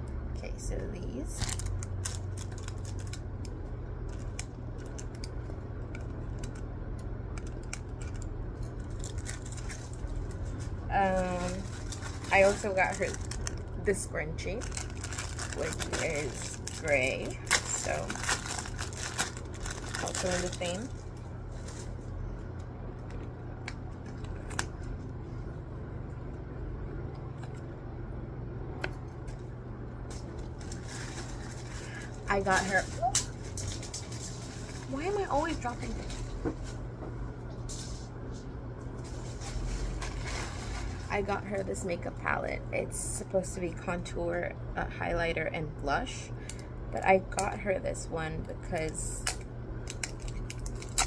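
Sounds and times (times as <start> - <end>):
steady low hum: 0.0 - 51.0
plastic crinkling: 1.4 - 22.1, 30.1 - 36.8, 39.0 - 41.4, 49.2 - 51.0.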